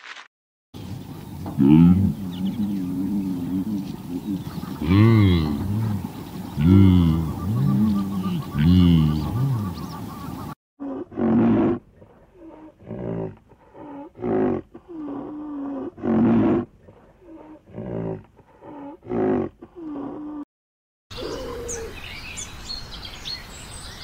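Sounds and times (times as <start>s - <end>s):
big cat roaring: 1.5s - 9.9s, 10.8s - 11.8s, 12.4s - 20.4s.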